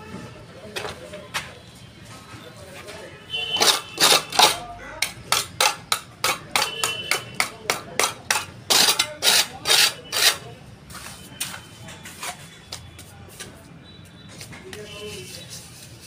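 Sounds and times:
trowel scraping concrete floor: 3.5s - 11.1s.

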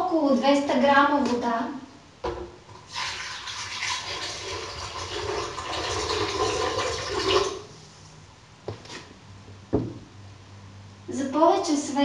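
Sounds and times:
water pouring into blender jar: 2.9s - 7.6s.

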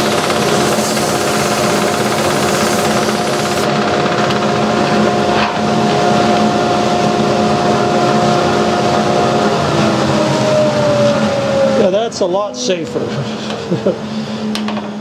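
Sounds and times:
hiss: 0.0s - 3.7s
wood lathe motor hum: 0.0s - 3.7s.

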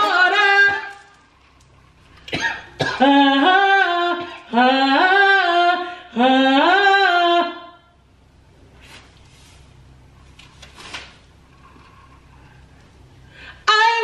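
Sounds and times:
woman singing wordless tune: 0.0s - 1.2s, 2.8s - 8.0s, 13.5s - 14.0s
coughs: 2.2s - 3.2s.

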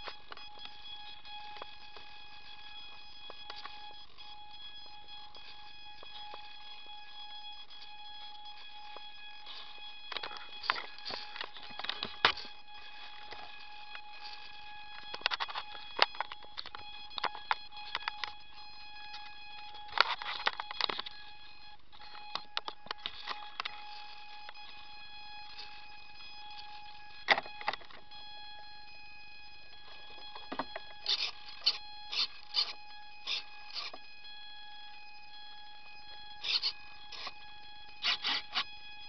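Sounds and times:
high electronic whine: 0.0s - 39.0s
clicks and knocks of handling: 19.1s - 21.2s, 27.2s - 28.1s.

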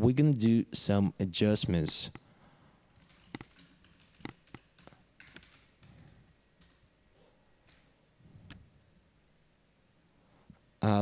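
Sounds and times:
keyboard typing clicks: 3.0s - 6.8s.

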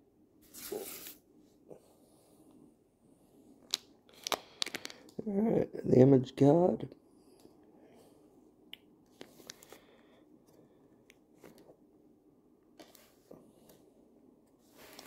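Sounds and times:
trading cards clicking and rubbing: 3.6s - 5.2s.

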